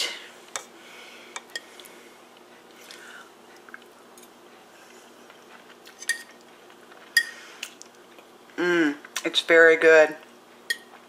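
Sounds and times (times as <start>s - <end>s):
person chewing food: 1.3s - 9.2s.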